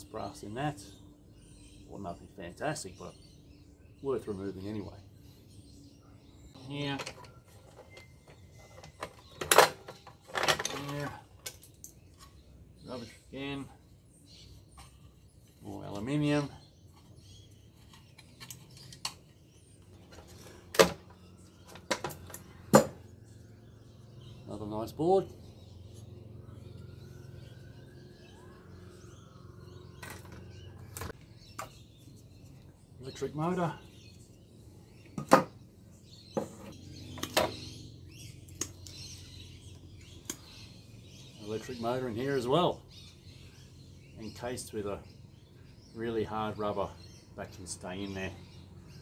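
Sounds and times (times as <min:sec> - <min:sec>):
birds chirping faintly: 0:00.0 - 0:49.0
clicks and knocks of tools: 0:07.0 - 0:12.4, 0:17.8 - 0:19.4.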